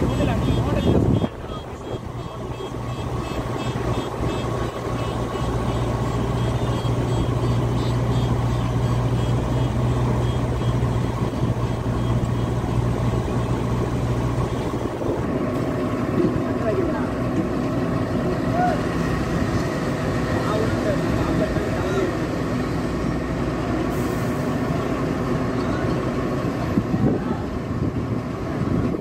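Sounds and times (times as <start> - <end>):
faint high-pitched beeping: 0.0 - 15.0
construction machinery engine drone: 0.0 - 29.0.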